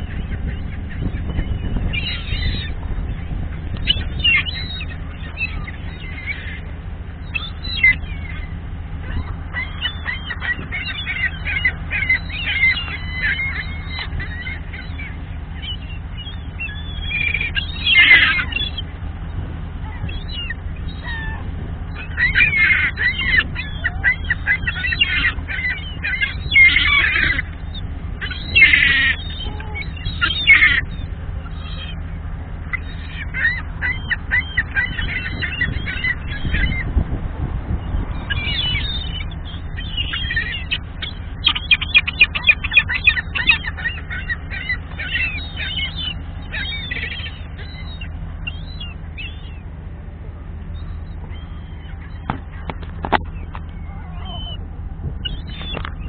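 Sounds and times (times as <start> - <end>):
gulls squawking: 0.0 - 56.0
steady low hum: 0.0 - 56.0.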